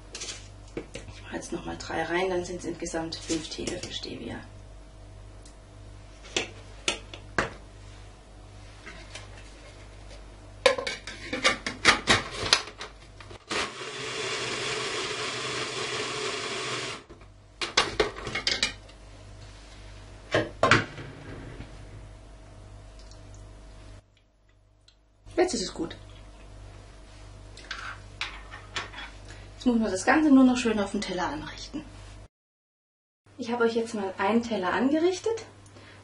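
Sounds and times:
food chopper running: 13.4 - 17.1.

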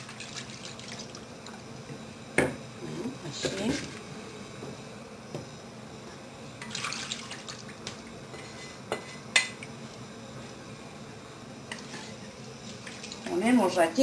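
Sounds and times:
liquid pouring into a pot: 0.0 - 1.6, 6.6 - 7.8
wooden spatula scraping a pan: 8.3 - 9.2.

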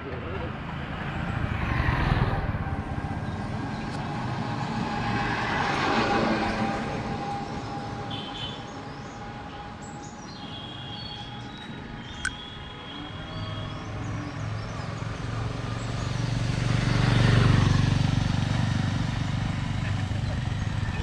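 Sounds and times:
vehicle engine passing: 0.1 - 8.1, 13.6 - 21.0.

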